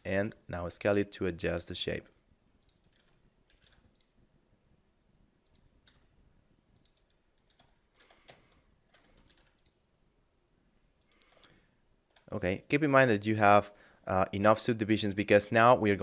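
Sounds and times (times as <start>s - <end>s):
mouse and keyboard clicks: 2.6s - 4.2s, 6.7s - 9.8s.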